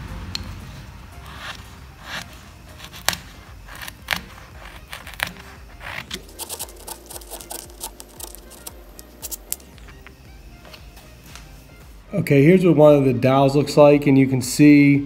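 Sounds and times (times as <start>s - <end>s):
chisel cutting wood clicks: 2.2s - 9.8s.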